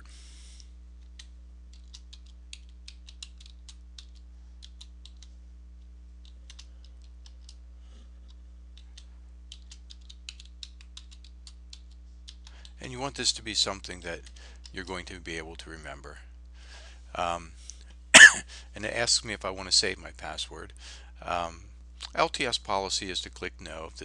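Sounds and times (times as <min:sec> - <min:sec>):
steady low hum: 0:00.0 - 0:24.0
typing on computer keyboard: 0:01.2 - 0:05.3, 0:09.5 - 0:12.4.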